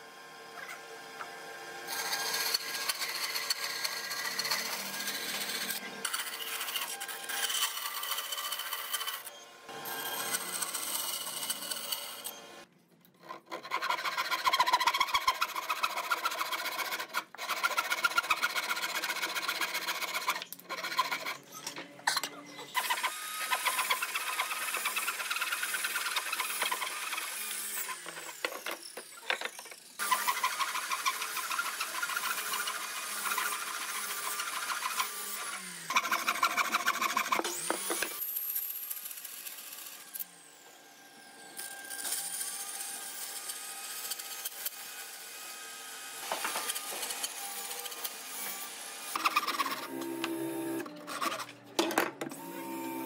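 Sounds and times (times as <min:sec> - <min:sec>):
tool rasping hardwood: 0:13.2 - 0:21.5, 0:22.8 - 0:38.2, 0:46.2 - 0:51.5.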